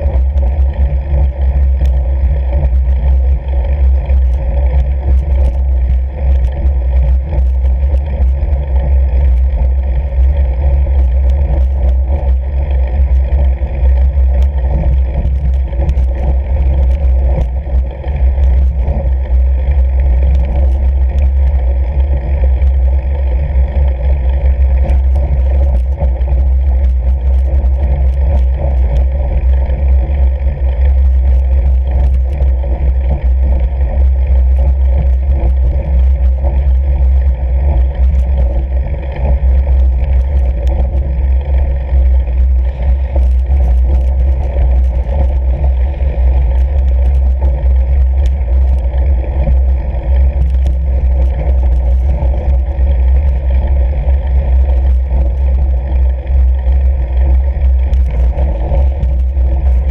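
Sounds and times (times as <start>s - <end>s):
bike tyres rumbling over ice: 0.0s - 59.9s
light ticks and rattles: 0.0s - 59.9s.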